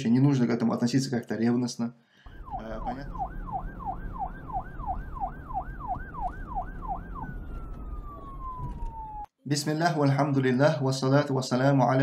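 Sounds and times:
low rumble: 2.3s - 9.3s
siren yelping: 2.3s - 9.3s.

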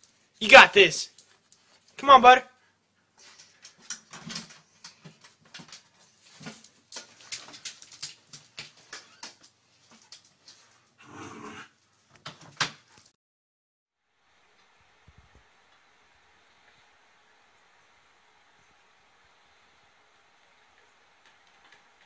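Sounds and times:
dog claws on tile floor: 3.2s - 10.9s.

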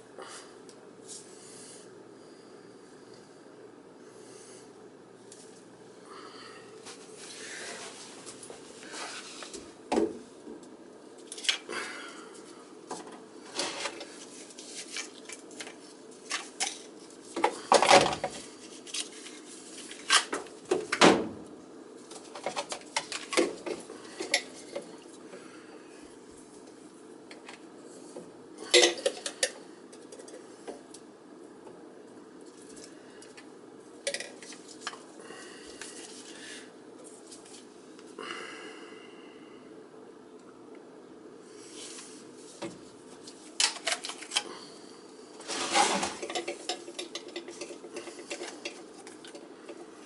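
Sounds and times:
plastic pipe fittings clattering: 45.4s - 49.9s.

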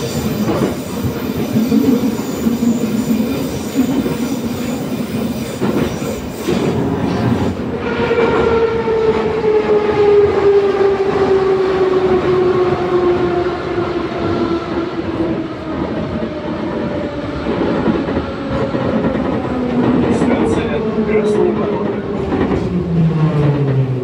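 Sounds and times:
wheels rumbling on rails: 0.0s - 24.0s.

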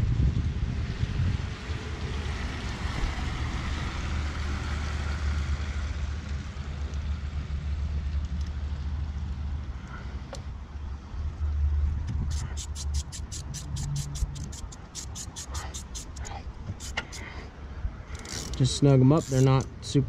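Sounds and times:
wind buffeting microphone: 0.0s - 1.9s.

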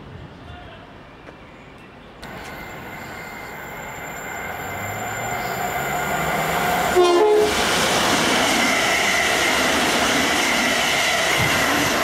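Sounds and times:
thin steady whine: 2.2s - 7.1s
train rumble approaching: 2.2s - 12.0s.

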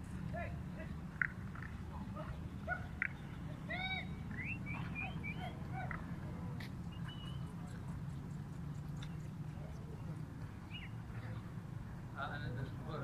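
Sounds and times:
steady low hum: 0.0s - 13.0s
bird chirping: 2.6s - 5.9s, 6.8s - 11.1s.

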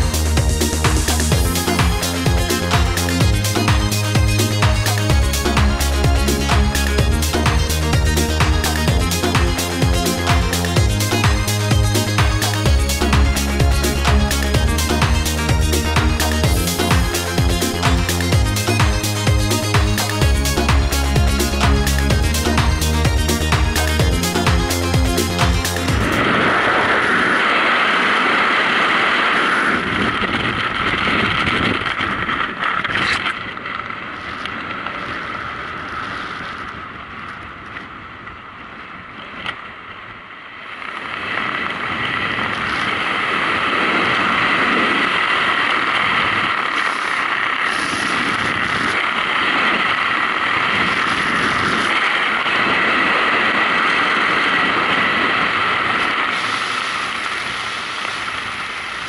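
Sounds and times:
wind buffeting microphone: 25.9s - 40.2s, 41.1s - 59.0s.

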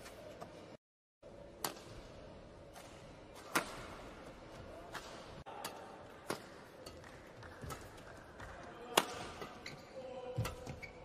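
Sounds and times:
rackets striking shuttlecock: 1.6s - 2.1s, 2.7s - 4.2s, 4.9s - 9.7s.

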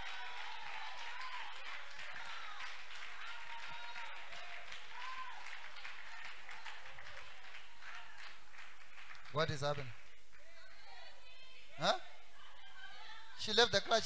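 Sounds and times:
congregation applauding: 0.0s - 10.5s.

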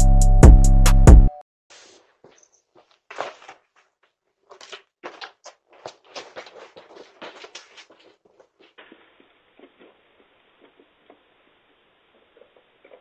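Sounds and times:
plastic crinkling and rustling: 1.7s - 11.3s.

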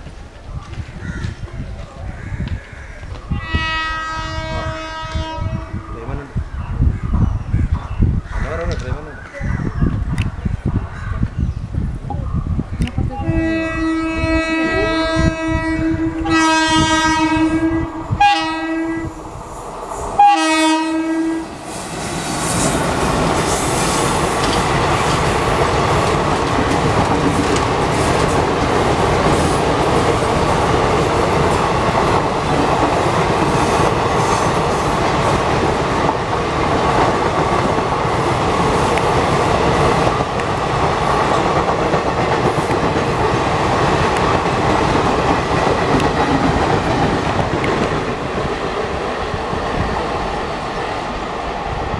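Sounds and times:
train coaches rumbling and clattering: 0.0s - 51.9s
locomotive horn blasts: 3.4s - 5.9s, 13.2s - 19.2s, 20.2s - 21.5s.

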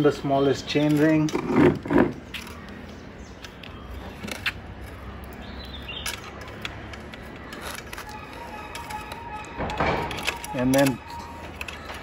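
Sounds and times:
bicycle chain clicking and rattling: 4.1s - 12.0s.

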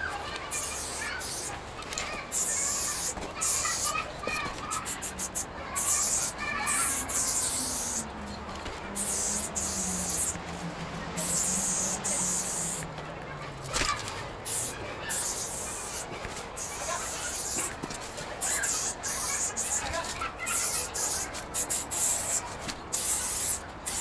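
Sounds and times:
spray paint hissing: 0.5s - 1.6s, 2.3s - 8.1s, 8.9s - 10.4s, 11.1s - 12.9s, 14.4s - 17.8s, 18.4s - 24.0s.

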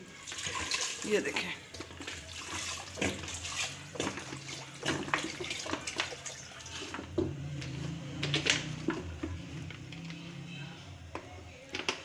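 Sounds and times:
water pouring into liquid: 0.0s - 7.3s.

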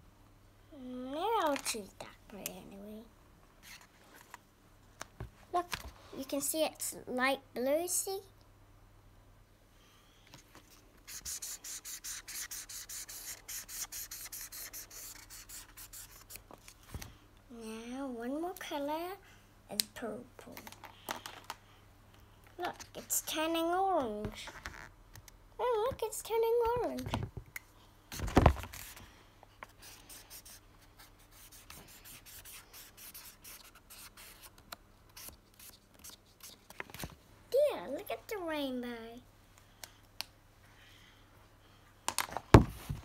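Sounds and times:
marker scribbling on paper: 11.1s - 16.4s, 29.8s - 34.5s.

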